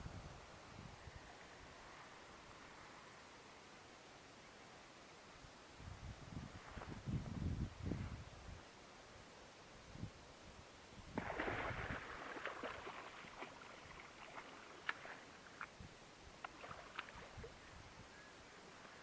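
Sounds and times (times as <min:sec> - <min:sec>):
fish thrashing in water: 0:11.2 - 0:15.2
water splashes and drips: 0:11.2 - 0:15.8, 0:16.4 - 0:17.5.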